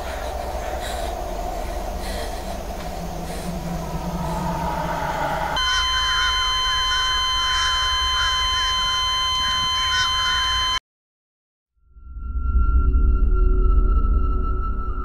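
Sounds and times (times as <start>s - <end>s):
warbling texture: 0.0s - 5.6s
low grinding rumble: 0.0s - 5.7s
piercing electronic tone: 2.0s - 10.8s.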